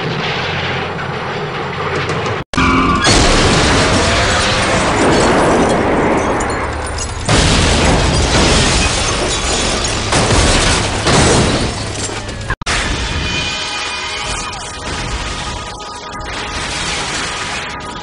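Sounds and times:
cars crashing and rolling over: 0.0s - 18.0s.

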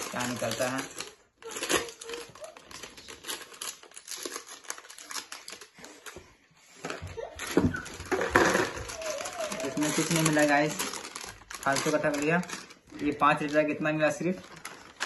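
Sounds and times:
scissors snipping foil packet: 0.0s - 6.0s, 8.6s - 13.7s
foil packet crinkling: 0.0s - 6.3s, 7.4s - 15.0s.

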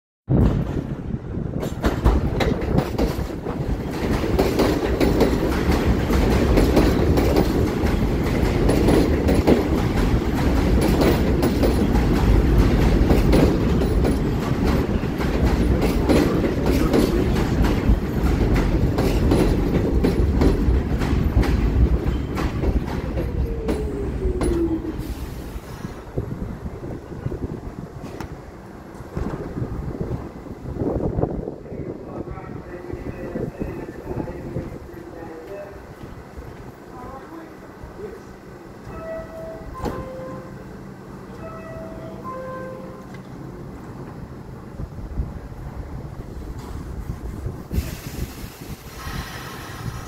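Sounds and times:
subway train wheels clattering: 0.3s - 50.0s
train brakes whining: 22.1s - 26.2s, 38.8s - 40.7s, 47.7s - 50.0s.

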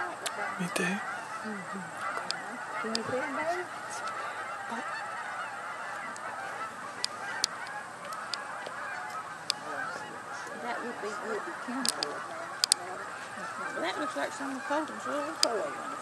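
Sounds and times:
geese honking in flight: 0.0s - 16.0s
sharp clicks: 11.8s - 12.9s.

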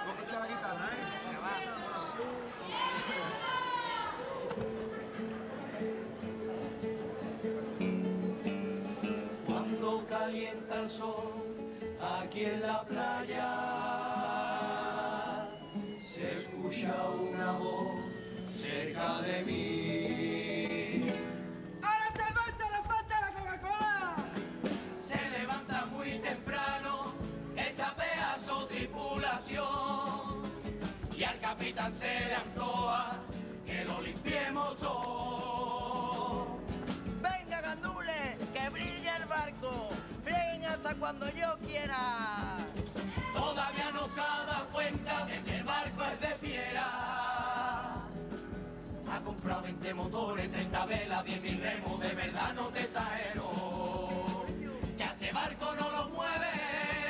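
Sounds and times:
guitar accompaniment: 2.2s - 57.0s
chorus of young voices singing: 9.0s - 21.4s, 25.0s - 36.8s, 43.1s - 57.0s.

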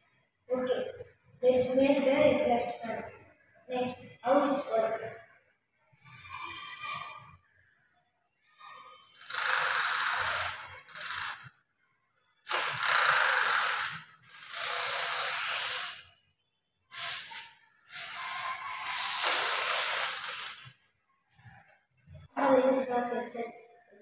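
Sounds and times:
small motor fan whirring and rattling: 9.1s - 11.6s, 12.5s - 16.1s, 16.9s - 20.8s.

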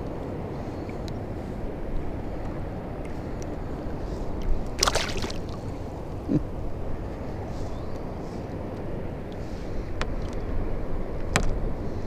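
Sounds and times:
water sloshing against kayak: 4.7s - 5.8s.

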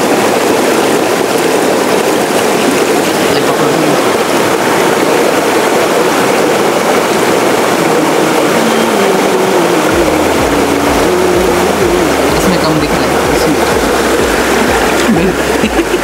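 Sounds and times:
waterfall roaring: 0.0s - 16.0s
low uneven rumble: 1.2s - 16.0s.

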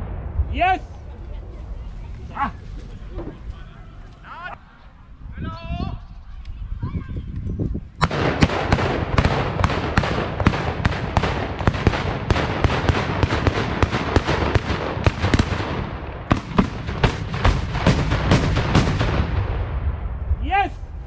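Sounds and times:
salute guns firing: 8.0s - 19.4s.

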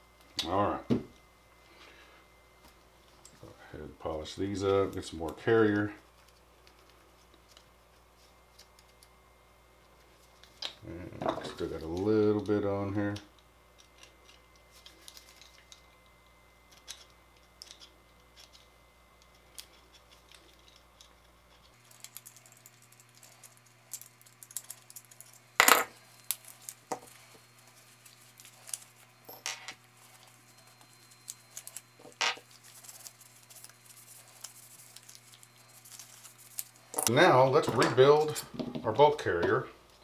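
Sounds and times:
metal parts clicking and clinking: 16.7s - 18.6s, 19.2s - 27.2s.

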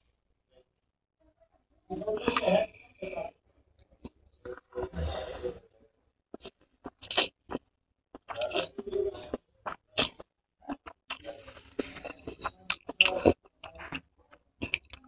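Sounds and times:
slurping noodles: 4.8s - 5.6s, 10.0s - 14.0s
chewing with wet smacks: 6.4s - 15.0s.

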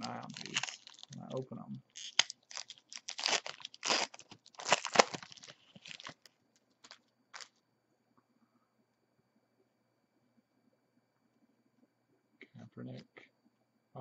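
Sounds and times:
foil wrapper crinkling and tearing: 0.0s - 7.5s.

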